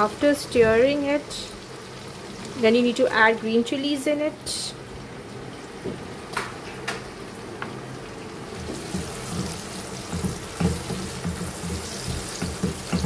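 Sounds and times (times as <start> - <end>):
vegetables sizzling in hot oil: 0.0 - 5.0, 8.2 - 13.0.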